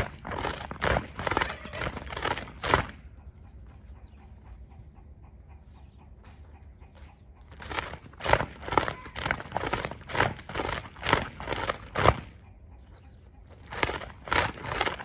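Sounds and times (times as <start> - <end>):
plastic flag swishing: 0.0 - 3.0, 7.5 - 12.3, 13.6 - 15.0.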